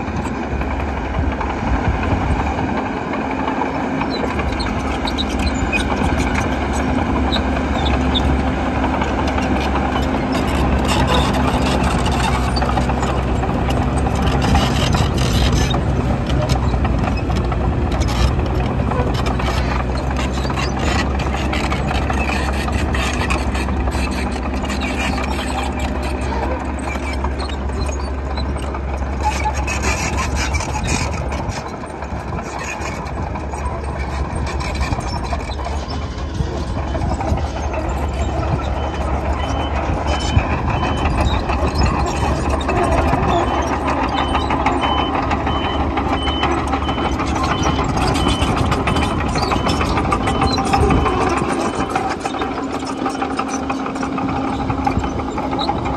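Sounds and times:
diesel engine running: 0:00.0 - 0:55.9
reversing alarm beeping: 0:44.2 - 0:50.6.

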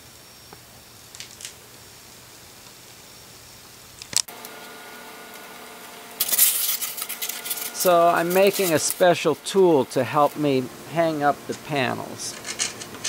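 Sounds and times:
faint room hum: 0:00.0 - 0:13.0
steady hum with held tones: 0:00.0 - 0:13.0
styrofoam block rubbing: 0:06.2 - 0:10.5.

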